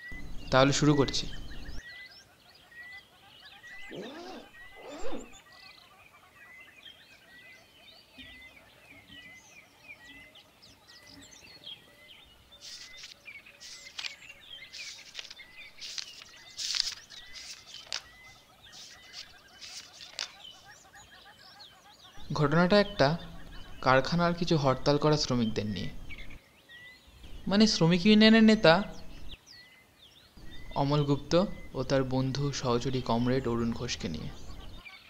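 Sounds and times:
small birds chirping: 0.0 - 35.0
cloth bag opening rasp: 3.8 - 5.4
paper pages rustling: 12.6 - 20.5.

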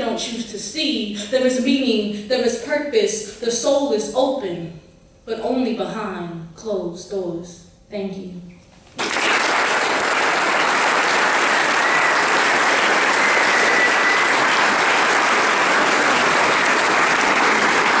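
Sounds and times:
audience applause: 9.0 - 18.0.

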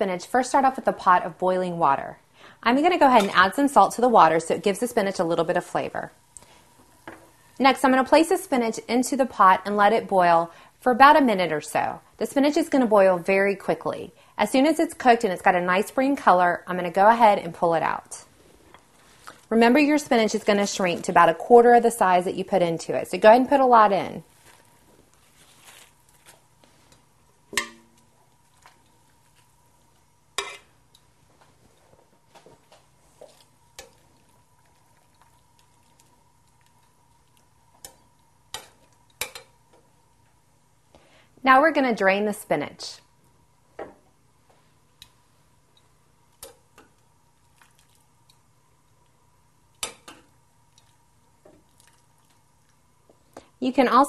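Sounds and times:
water dripping: 27.5 - 29.2, 33.4 - 39.8, 45.0 - 53.4
utensil clinking on metal pot: 27.6 - 28.0.

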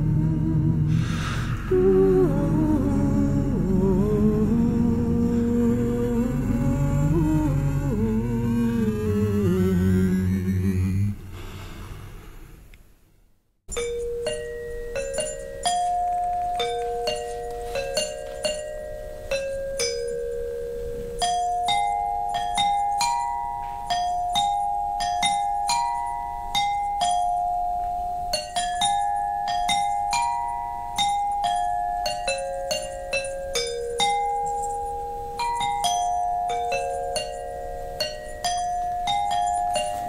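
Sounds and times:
bell-like tuned percussion melody: 13.7 - 40.0.

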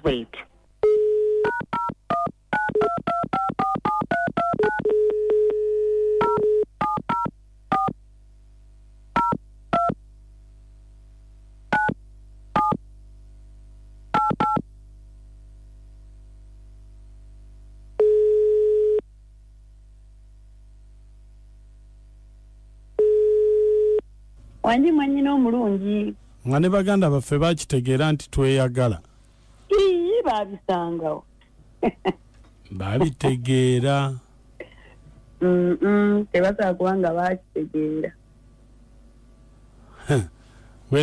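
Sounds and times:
faint steady hum: 0.0 - 41.0
dial tone: 0.8 - 7.9, 18.0 - 19.0, 23.0 - 24.0.

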